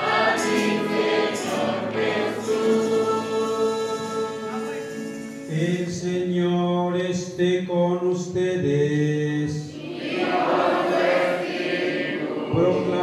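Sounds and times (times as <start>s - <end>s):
choir chanting held notes: 0.0s - 5.2s, 9.7s - 13.0s.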